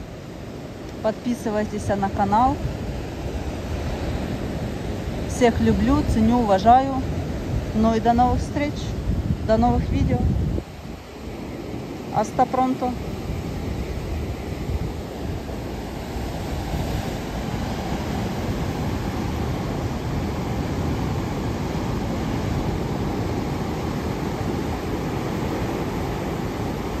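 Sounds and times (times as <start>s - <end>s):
ocean surf breaking on rocks: 0.0s - 27.0s
wind buffeting microphone: 2.2s - 12.1s, 12.9s - 27.0s.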